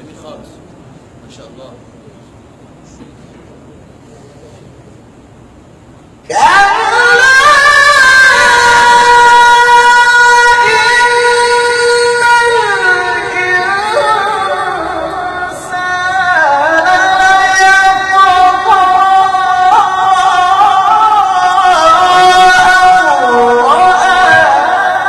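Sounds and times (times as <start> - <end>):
man reciting melodically: 6.2 - 25.0.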